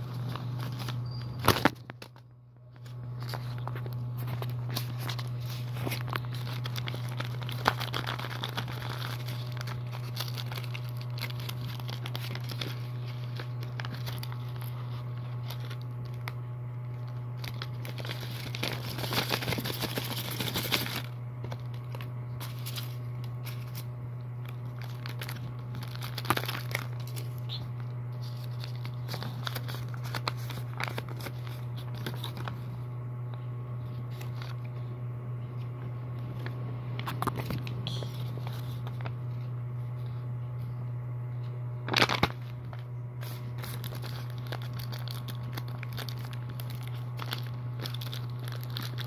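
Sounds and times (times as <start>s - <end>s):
paper crinkling and rustling: 0.0s - 32.9s, 33.8s - 34.9s, 35.6s - 40.7s, 41.8s - 49.0s
steady low hum: 0.0s - 49.0s
paper tearing: 3.1s - 16.4s, 17.0s - 23.9s, 28.1s - 32.7s, 43.2s - 49.0s.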